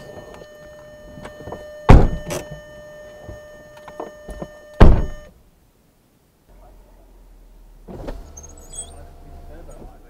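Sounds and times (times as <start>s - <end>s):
car warning tone: 0.0s - 5.4s
car doors thumping shut: 1.9s - 2.4s, 4.4s - 5.3s.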